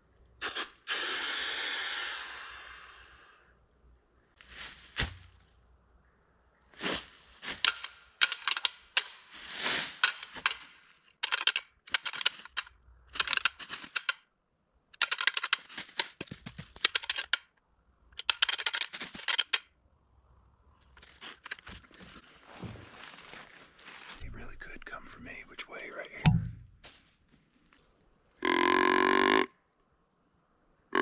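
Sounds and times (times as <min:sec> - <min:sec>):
crunching and crackling rustle: 0:20.8 - 0:28.4.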